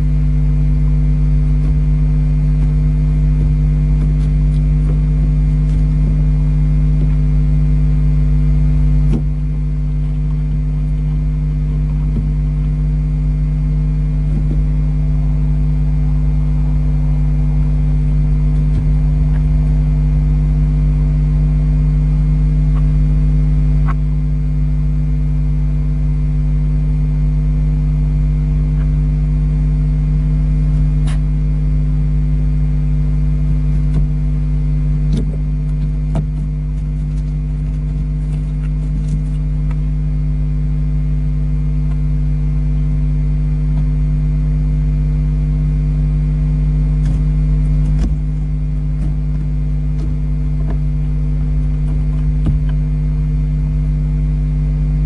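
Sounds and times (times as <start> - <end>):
electrical hum: 0.0 - 55.0.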